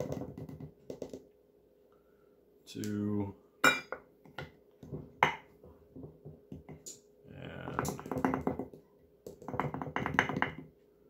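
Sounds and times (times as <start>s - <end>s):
metal cup tapping on glass: 7.8s - 10.7s.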